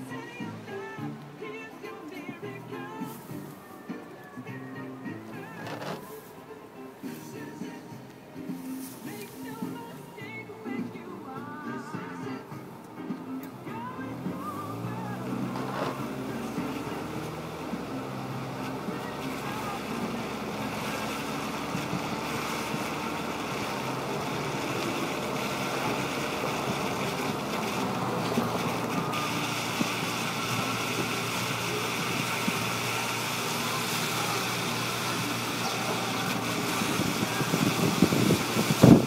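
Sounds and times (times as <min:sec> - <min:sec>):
car engine hum: 0:00.0 - 0:39.0
tyres on wet pavement: 0:00.0 - 0:39.0.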